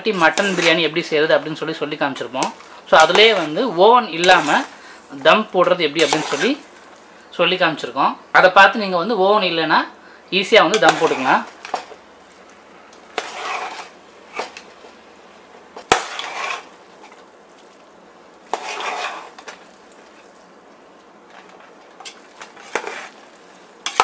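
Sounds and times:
metal spoon scraping a metal pot: 0.1s - 0.8s, 4.2s - 4.7s, 6.0s - 6.6s, 13.1s - 14.6s, 15.9s - 16.7s, 18.5s - 19.6s, 22.0s - 23.2s.

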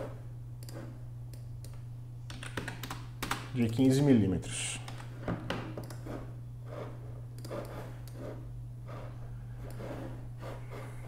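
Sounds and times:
low electrical hum: 0.0s - 11.0s
computer mouse clicks: 7.4s - 8.2s.

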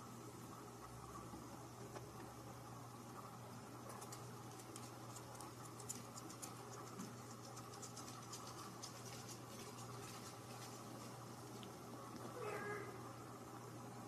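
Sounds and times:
steady low hum: 0.0s - 14.0s
kitten paws scratching couch: 4.0s - 11.6s.

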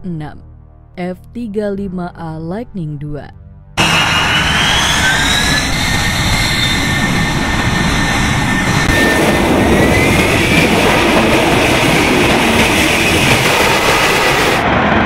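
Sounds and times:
high jet whine: 3.8s - 15.0s
jet engine roaring: 3.8s - 15.0s.

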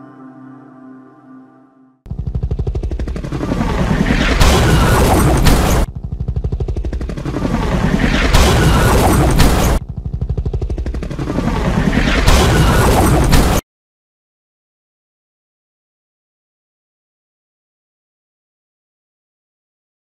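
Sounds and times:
helicopter rotor blades chopping: 2.1s - 13.6s
crash and explosion boom: 4.1s - 5.9s, 8.0s - 9.8s, 12.0s - 13.6s.

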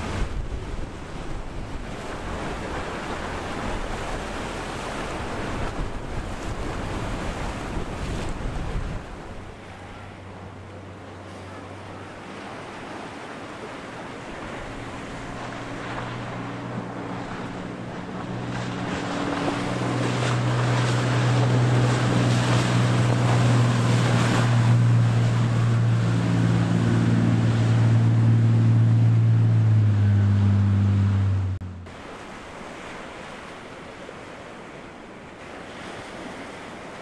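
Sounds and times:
boat engines droning: 0.0s - 37.0s
spray and breaking waves: 0.0s - 37.0s.

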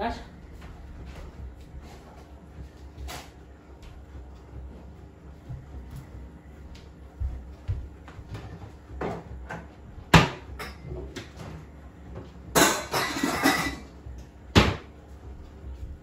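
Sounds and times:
clattering and rustling in cupboards: 8.2s - 14.9s.

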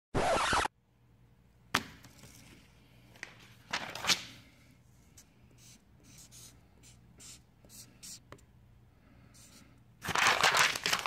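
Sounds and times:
marker pen scratching on paper: 5.6s - 8.3s.

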